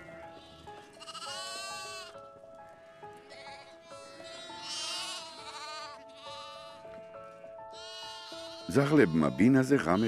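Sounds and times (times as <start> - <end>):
soft background music: 0.0 - 10.0
lambs bleating: 0.2 - 2.2, 3.2 - 7.0, 7.7 - 10.0.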